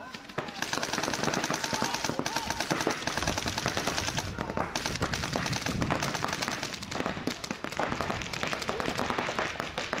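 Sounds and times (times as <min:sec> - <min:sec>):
paintball markers firing: 0:00.0 - 0:10.0.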